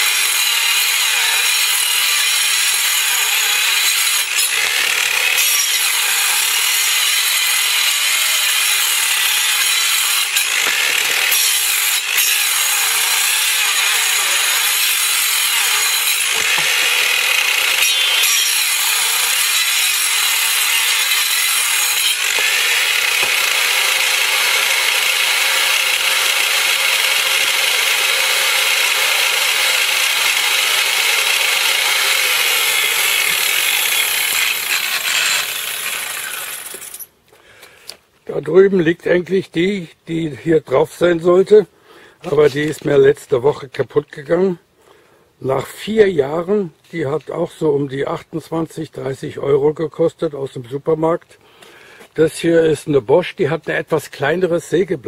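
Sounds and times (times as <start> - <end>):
circular saw cutting log: 0.0 - 37.1.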